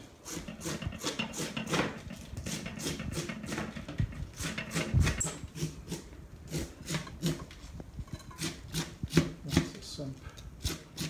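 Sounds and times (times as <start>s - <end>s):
knife chopping cabbage on board: 8.4s - 9.7s.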